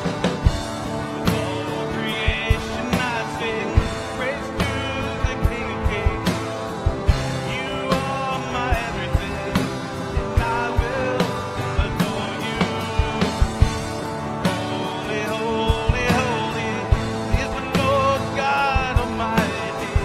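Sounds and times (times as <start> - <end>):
acoustic guitar: 0.0 - 20.0
electric guitar: 0.0 - 20.0.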